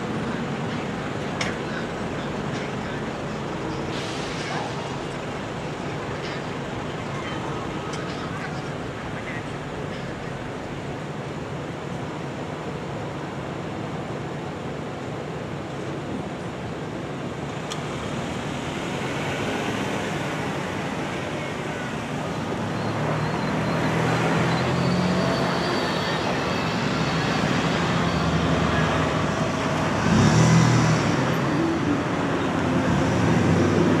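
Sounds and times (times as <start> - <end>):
cars driving past: 17.5 - 34.0.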